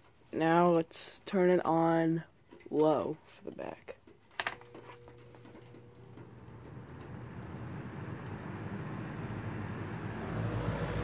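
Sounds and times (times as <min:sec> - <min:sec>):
fan motor hum and air rush: 0:05.0 - 0:11.0.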